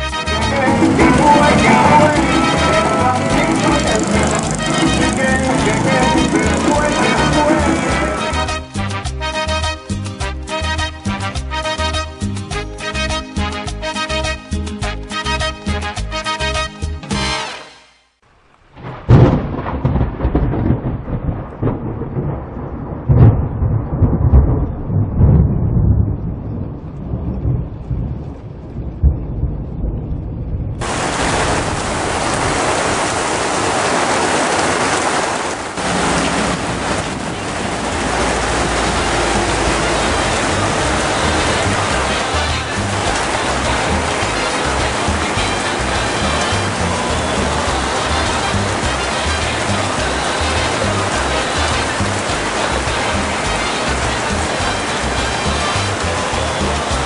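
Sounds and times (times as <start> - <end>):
heavy rain on wet street: 0.0 - 29.3, 30.0 - 57.0
rolling thunder: 18.7 - 57.0
sharp thunderclap: 18.8 - 55.4.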